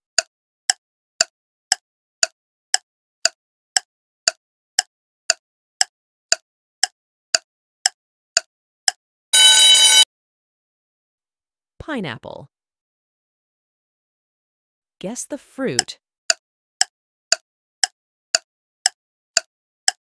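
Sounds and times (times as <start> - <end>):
clock ticking: 0.2 - 9.0, 15.7 - 20.0
short alarm ring: 9.4 - 10.0.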